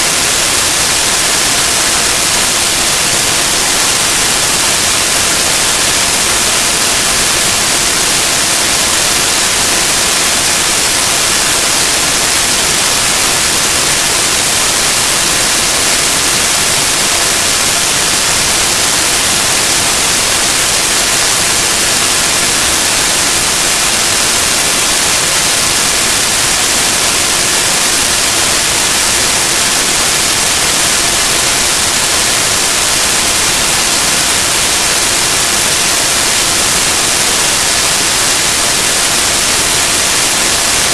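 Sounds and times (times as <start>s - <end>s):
loud static hiss: 0.0s - 40.9s.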